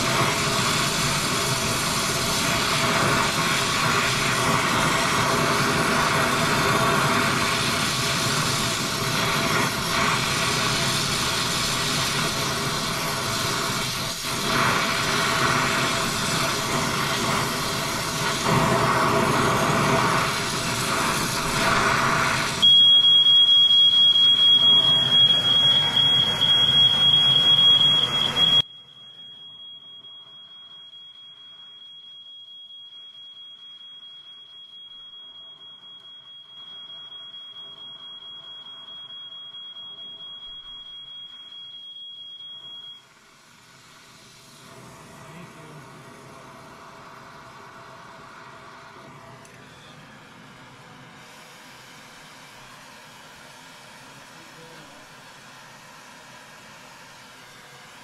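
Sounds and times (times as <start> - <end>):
torch flame hissing: 0.0 - 28.6, 43.0 - 49.4
high-pitched electronic tone: 0.0 - 43.1.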